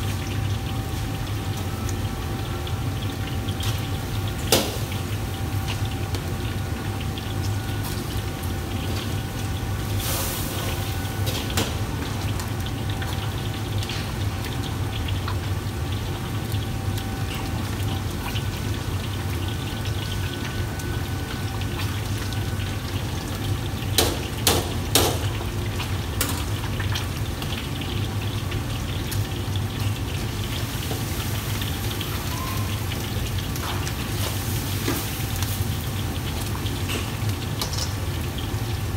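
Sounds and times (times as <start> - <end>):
gas burner roar: 0.0 - 38.9
utensils clanking on woks: 36.5 - 38.2.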